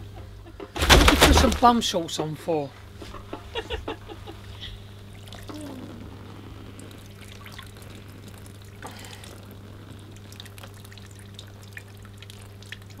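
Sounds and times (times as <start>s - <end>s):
steady low hum: 0.0s - 13.0s
water dripping and trickling: 5.0s - 5.5s, 6.7s - 13.0s.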